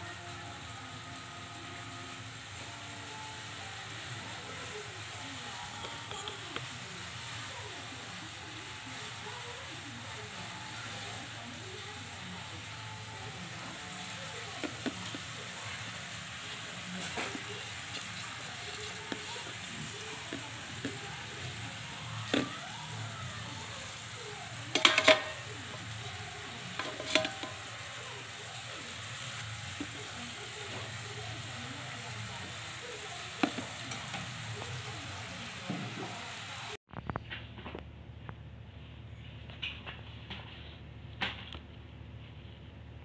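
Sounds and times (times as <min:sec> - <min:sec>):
metal pot parts clattering: 0:24.7 - 0:25.5, 0:26.7 - 0:27.7.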